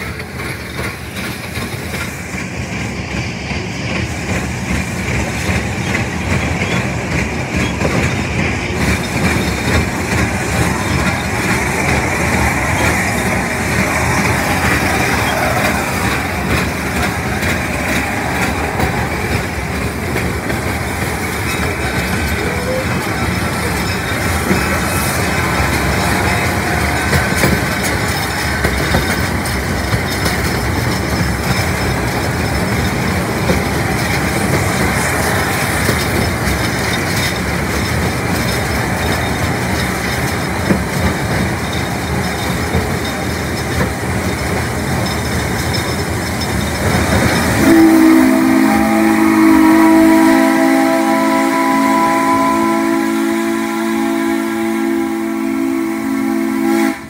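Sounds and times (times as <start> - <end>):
train rumble and clatter: 0.0 - 57.0
steam whistle blast: 47.5 - 57.0.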